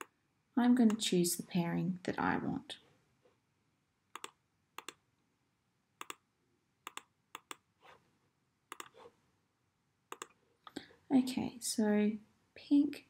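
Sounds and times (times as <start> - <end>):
computer mouse clicks: 0.8 - 1.0, 4.1 - 5.0, 6.0 - 6.2, 6.8 - 7.6, 8.7 - 9.1, 10.1 - 10.4.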